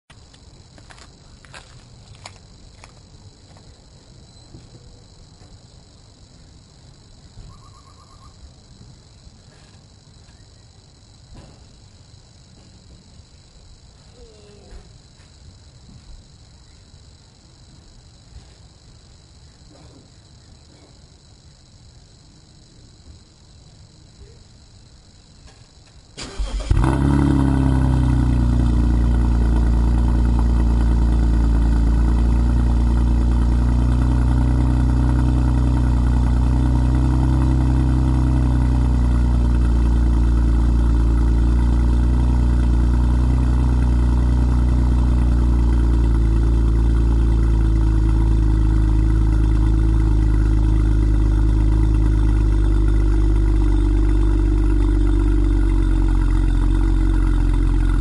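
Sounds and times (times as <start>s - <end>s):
car engine idling: 26.2s - 58.0s.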